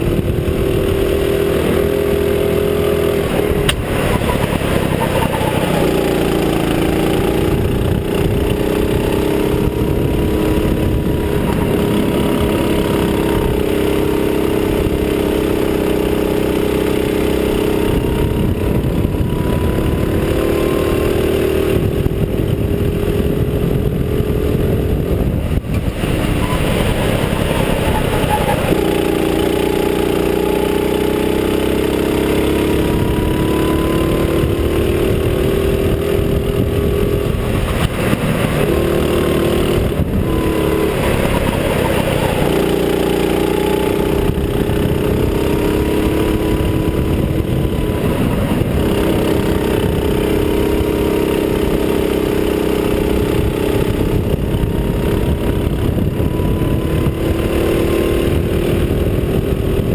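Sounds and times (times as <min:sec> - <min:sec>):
go-kart engine running hard: 0:00.0 - 0:59.9
wind noise: 0:00.0 - 0:59.9.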